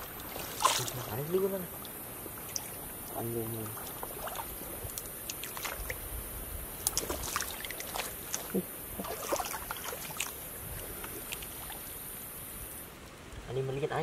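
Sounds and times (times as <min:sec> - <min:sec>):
water splashing in stream: 0:00.0 - 0:12.9
steady high hiss: 0:00.0 - 0:14.0
small ticks: 0:03.8 - 0:06.0, 0:06.7 - 0:08.7.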